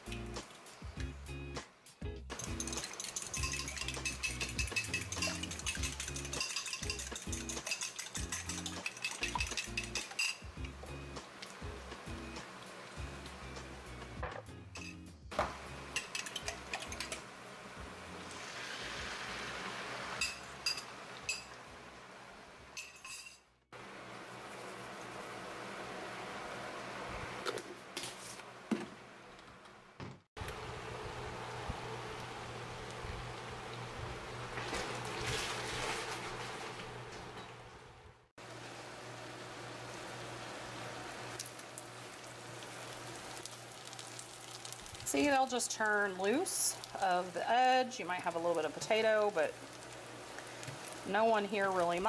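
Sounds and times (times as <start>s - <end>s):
eggs sizzling in skillet: 2.3s - 14.2s, 15.3s - 22.5s, 38.4s - 52.0s
metal spoon clinking on glass bowl: 2.4s - 10.5s
spoon scraping bowl: 2.4s - 10.5s.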